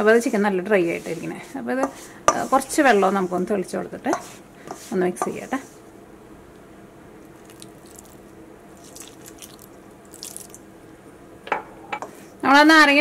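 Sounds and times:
water splashing and dribbling: 0:07.4 - 0:08.2, 0:08.8 - 0:10.6.

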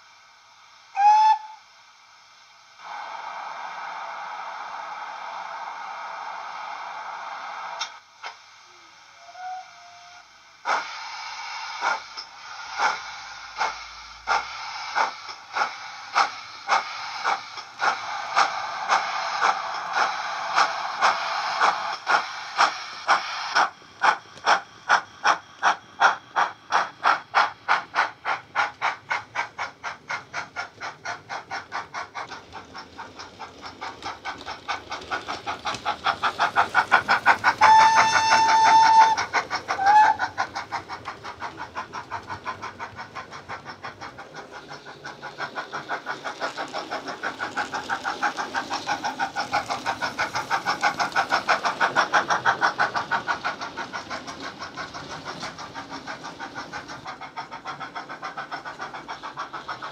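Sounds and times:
steam locomotive chuffs: 0:00.0 - 0:59.9
steam whistle: 0:00.9 - 0:01.7, 0:09.1 - 0:10.3, 0:37.6 - 0:40.2.

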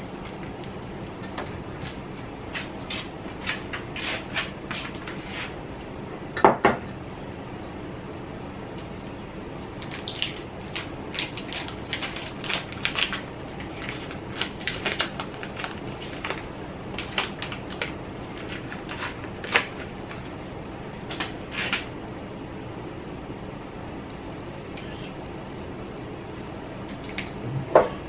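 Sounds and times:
low background hum: 0:00.0 - 0:28.0
paper wrapper crinkling: 0:09.7 - 0:20.3.

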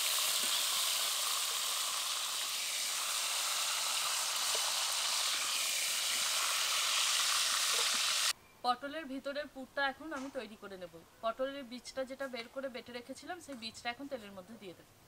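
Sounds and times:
vegetables sizzling in oil: 0:00.0 - 0:08.3.

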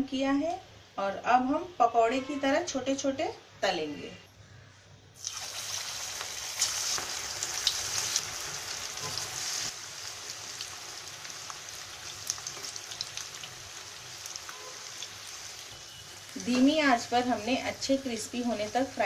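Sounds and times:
oil crackling and popping: 0:05.2 - 0:16.8
batter sizzling in hot oil: 0:05.2 - 0:19.0.

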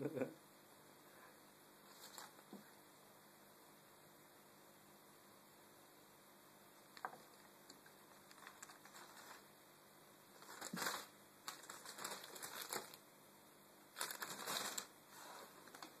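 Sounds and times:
plastic bag rustling: 0:01.9 - 0:02.6, 0:07.0 - 0:09.5, 0:10.3 - 0:13.0, 0:13.9 - 0:16.0.

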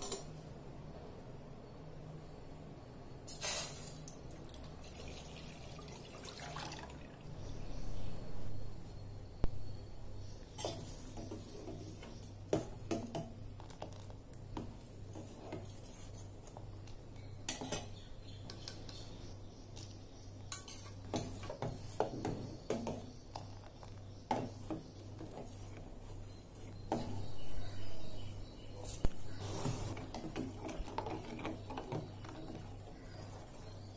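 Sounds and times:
low hum: 0:07.2 - 0:10.6.

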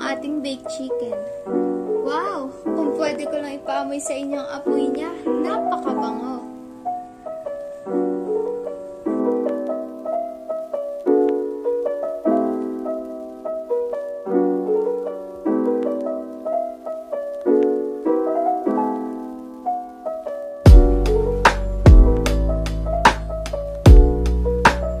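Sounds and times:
gentle piano music: 0:00.0 - 0:25.0.

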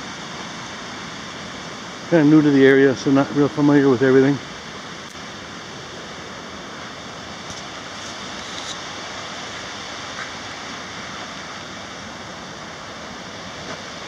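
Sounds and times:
creek rushing over rocks: 0:00.0 - 0:14.0.

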